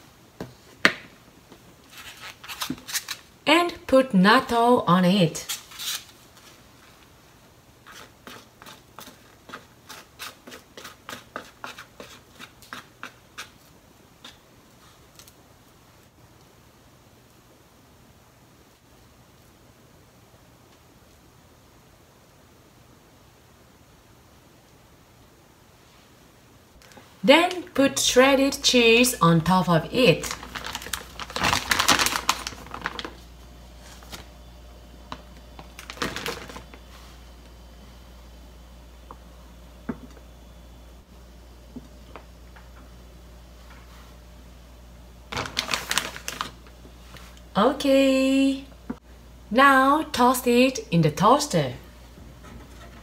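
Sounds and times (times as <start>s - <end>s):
plastic bag crinkling: 30.0s - 34.3s, 35.6s - 36.8s, 45.3s - 46.7s.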